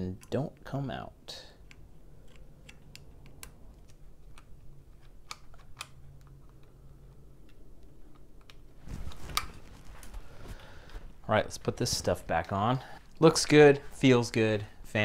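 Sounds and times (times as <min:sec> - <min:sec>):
handling noise: 0:02.1 - 0:14.0.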